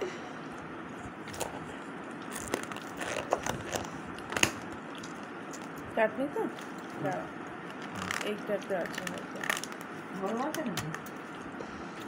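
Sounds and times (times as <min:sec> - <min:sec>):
steady background noise: 0:00.0 - 0:12.0
person eating and chewing: 0:00.5 - 0:05.9, 0:06.5 - 0:08.3, 0:11.0 - 0:12.0.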